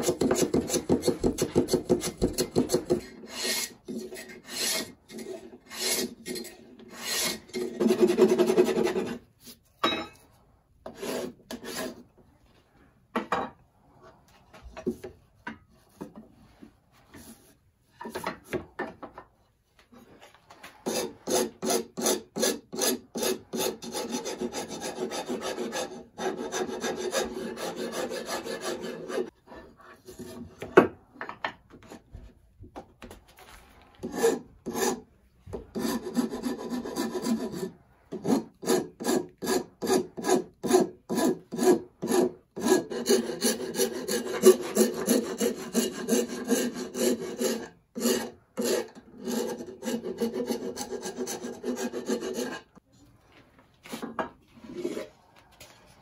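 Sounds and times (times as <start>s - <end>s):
hand rasp scraping wood: 0.0s - 9.2s, 10.9s - 12.0s, 20.8s - 30.5s, 34.0s - 35.0s, 35.7s - 52.8s, 54.6s - 55.1s.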